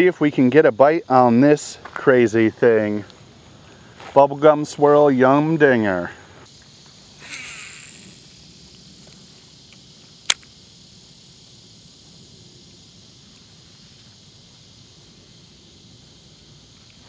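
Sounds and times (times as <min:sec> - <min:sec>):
high-pitched insect chorus: 0:00.0 - 0:17.0
sharp click: 0:09.7 - 0:10.5.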